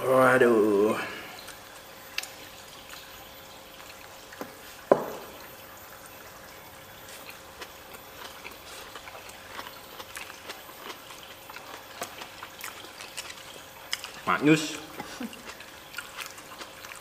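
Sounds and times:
people chewing food: 0:01.0 - 0:05.6, 0:06.2 - 0:17.0.

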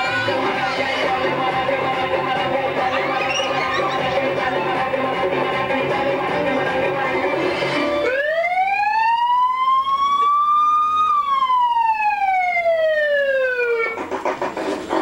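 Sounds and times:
music: 0:00.0 - 0:08.3, 0:13.5 - 0:15.0
rising and falling siren tone: 0:07.9 - 0:14.0.

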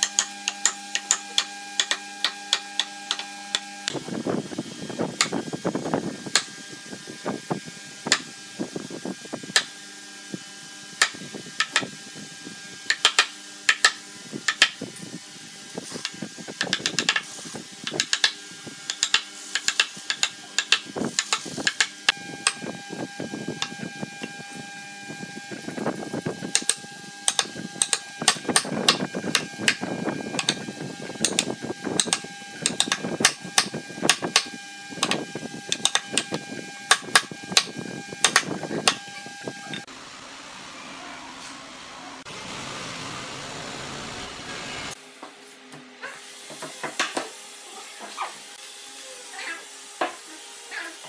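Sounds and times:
mallet striking chisel: 0:00.0 - 0:03.7, 0:06.3 - 0:06.5, 0:08.1 - 0:08.3, 0:09.5 - 0:09.8, 0:11.0 - 0:11.9, 0:12.9 - 0:14.8, 0:16.0 - 0:22.6, 0:26.5 - 0:30.6, 0:31.2 - 0:39.8
chisel rasping wood: 0:26.5 - 0:30.6, 0:31.2 - 0:39.3.

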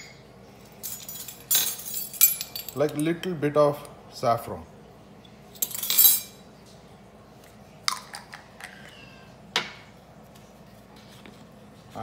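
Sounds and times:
metal measuring spoons jingling: 0:00.8 - 0:03.2, 0:05.6 - 0:06.3
spoons clinking on stone countertop: 0:05.6 - 0:06.4.

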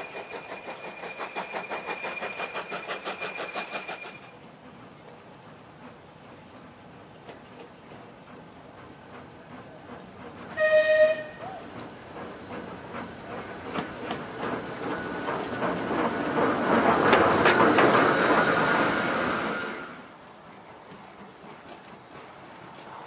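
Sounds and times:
rail-joint clicks: 0:00.0 - 0:19.6, 0:20.3 - 0:23.0
diesel locomotive passing: 0:00.0 - 0:23.0
diesel locomotive horn blast: 0:10.5 - 0:11.6.

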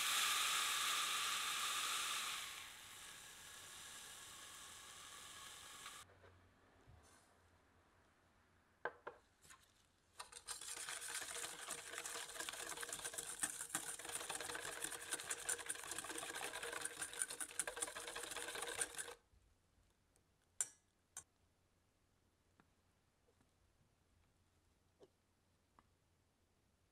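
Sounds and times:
whisk rattling against metal bowl: 0:10.2 - 0:19.2.

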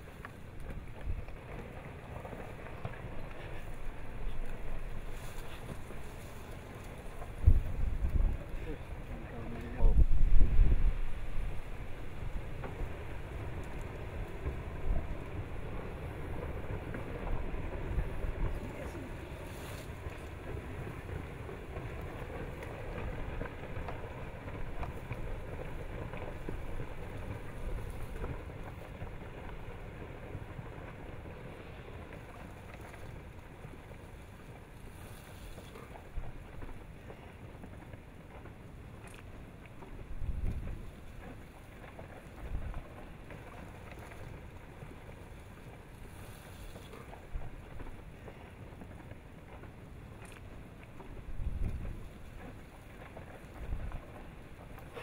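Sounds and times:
avalanche low rumble: 0:00.0 - 0:55.0
boulders clacking: 0:00.0 - 0:55.0
wind on microphone: 0:02.3 - 0:29.8, 0:40.0 - 0:44.4, 0:50.9 - 0:55.0.

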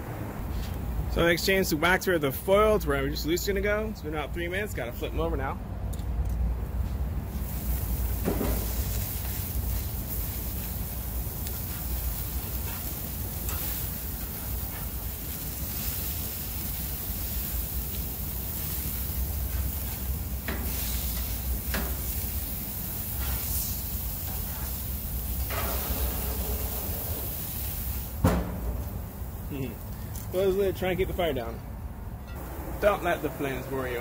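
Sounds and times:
burger patties sizzling on grill: 0:07.3 - 0:30.7.

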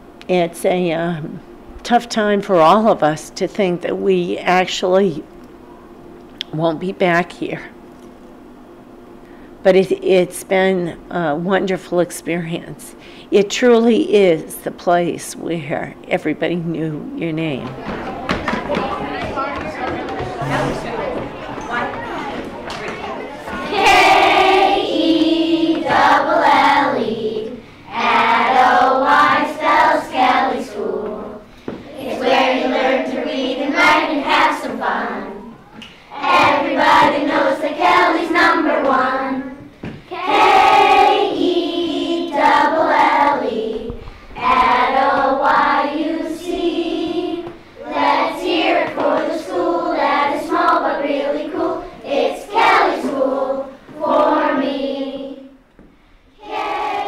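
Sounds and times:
children singing together: 0:17.9 - 0:35.6, 0:36.2 - 0:55.6, 0:56.4 - 0:57.0.

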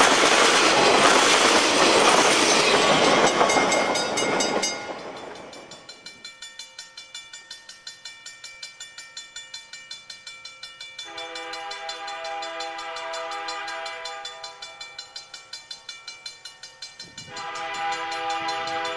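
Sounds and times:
passing train noise: 0:00.0 - 0:18.9
locomotive air horn: 0:11.1 - 0:14.8, 0:17.2 - 0:18.9.

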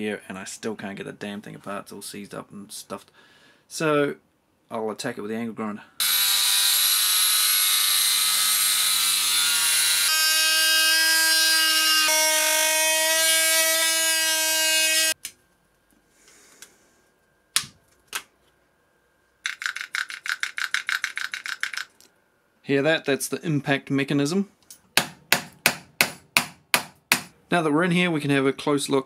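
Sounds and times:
angle grinder cutting metal: 0:06.0 - 0:15.2
drill hammer mechanism rattling clicks: 0:19.5 - 0:22.1.

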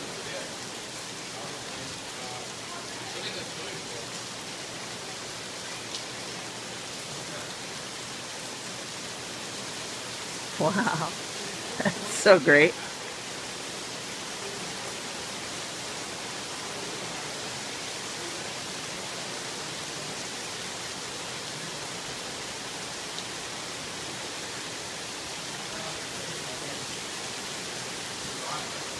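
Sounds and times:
heavy rain pouring: 0:00.0 - 0:28.9.

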